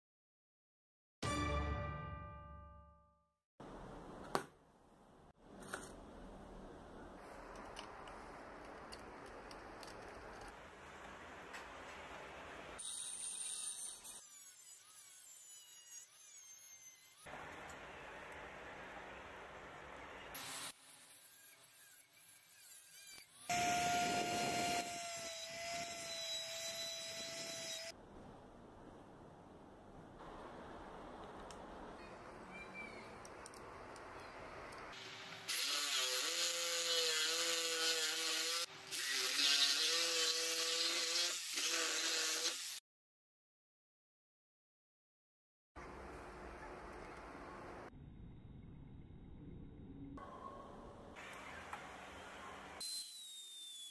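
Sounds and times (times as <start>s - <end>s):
rotary tool whine: 20.4s - 27.9s
electric jigsaw cutting wood: 23.1s - 27.9s.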